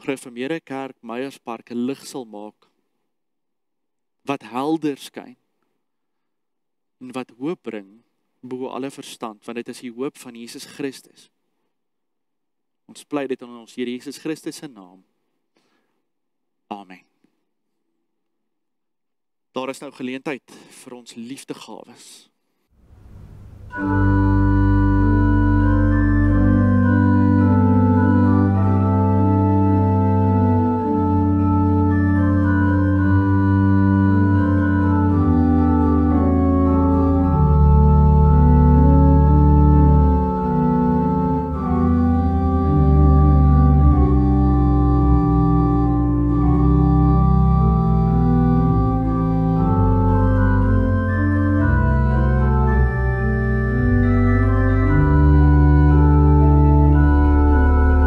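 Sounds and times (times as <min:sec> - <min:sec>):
organ playing held chords: 0:22.9 - 0:58.0.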